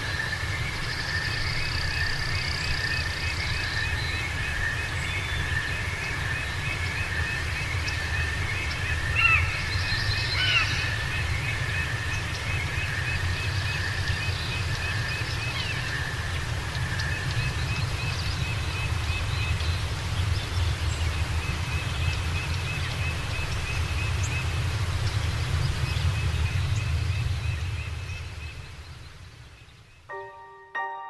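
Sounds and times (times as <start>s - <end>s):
frogs trilling and chirping: 0.0s - 19.8s.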